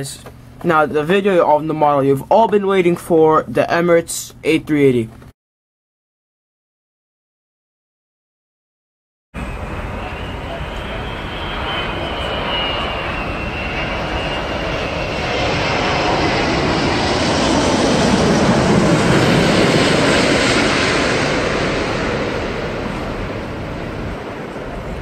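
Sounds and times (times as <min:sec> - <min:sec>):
high engine whine: 0:09.4 - 0:25.0
jet engines passing overhead: 0:09.4 - 0:25.0.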